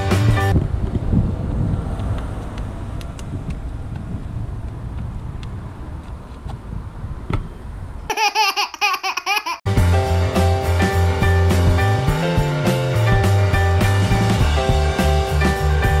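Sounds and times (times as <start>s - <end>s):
wind rumble: 0.0s - 8.1s
road traffic: 0.0s - 16.0s.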